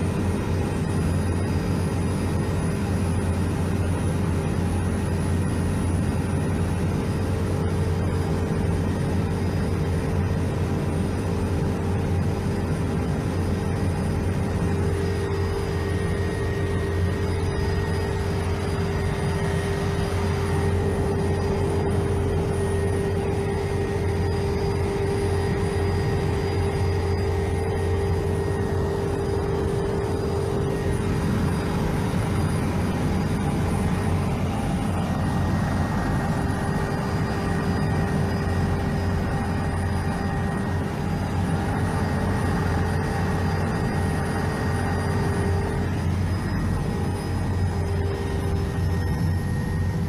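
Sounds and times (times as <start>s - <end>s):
constant whining tone: 0.0s - 50.0s
helicopter engine and rotor drone: 0.0s - 50.0s.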